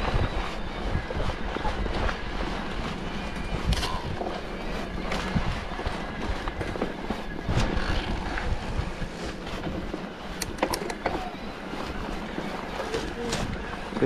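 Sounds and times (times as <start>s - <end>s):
bike rattling clicks and knocks: 0.0s - 14.0s
tyres rumbling over dirt: 0.0s - 14.0s.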